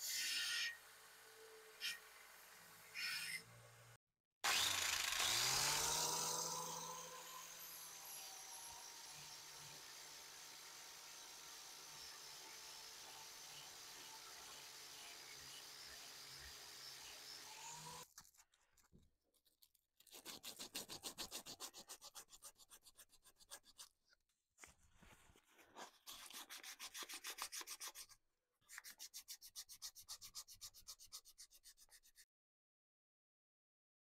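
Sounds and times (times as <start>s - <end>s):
sandpaper strokes on wood: 20.1s - 23.9s, 25.8s - 32.2s.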